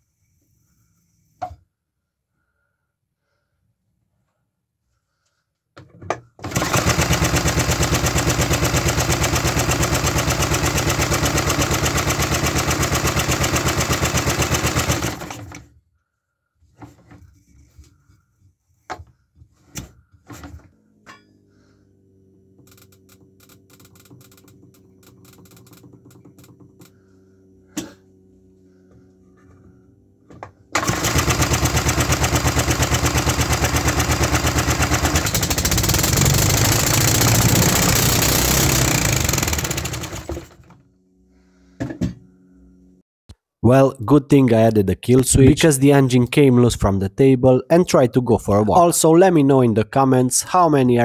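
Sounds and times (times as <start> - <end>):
small engine running at high revs: 6.4 - 15.6, 21.4 - 40.8.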